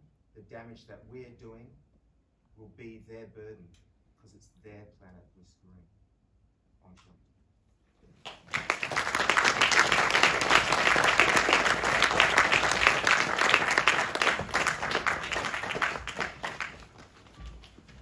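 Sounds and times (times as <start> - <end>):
audience applauding: 8.2 - 18.0.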